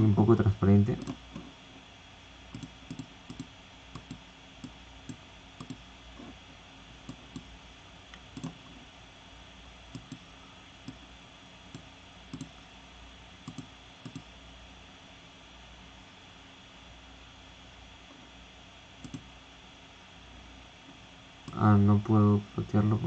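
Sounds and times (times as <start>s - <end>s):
faint hiss and low hum: 0.0s - 23.0s
mouse and keyboard clicks: 8.2s - 8.6s, 11.7s - 12.6s.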